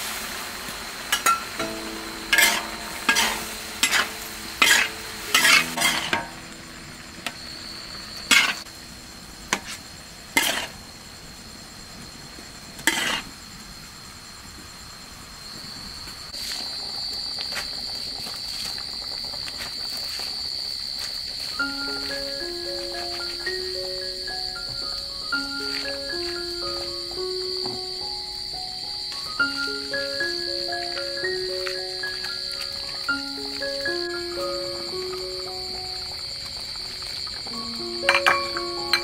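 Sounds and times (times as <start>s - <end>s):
frying sizzle: 0.0s - 39.0s
metal utensil scraping wok: 1.2s - 6.5s, 8.1s - 8.7s, 10.4s - 10.8s, 12.8s - 13.3s.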